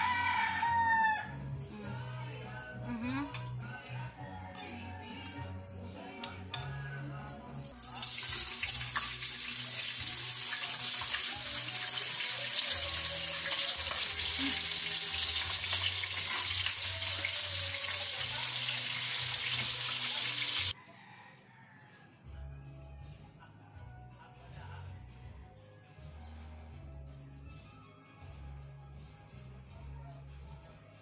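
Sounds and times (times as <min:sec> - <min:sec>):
bacon sizzling in hot oil: 0:07.8 - 0:20.8.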